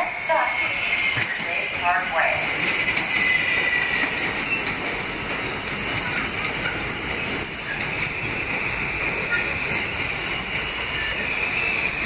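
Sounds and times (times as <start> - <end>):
subway train on tracks: 0.0 - 12.0
train whine: 0.0 - 12.0
high-pitched wheel squeal: 7.7 - 12.0.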